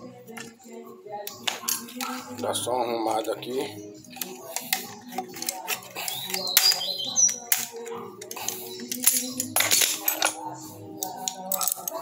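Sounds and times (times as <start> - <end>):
background music: 0.0 - 12.0
metal clinks and knocks: 7.4 - 10.4.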